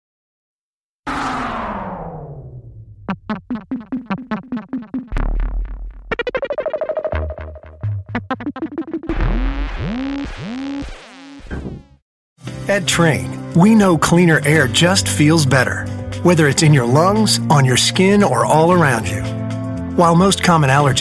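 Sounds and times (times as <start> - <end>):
electronic synthesizer music: 1.1 - 11.6.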